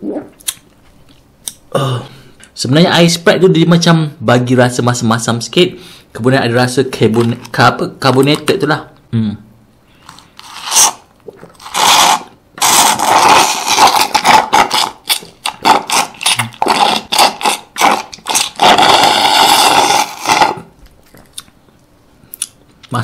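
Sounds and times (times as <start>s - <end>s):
slurping through a metal straw: 10.0s - 20.7s.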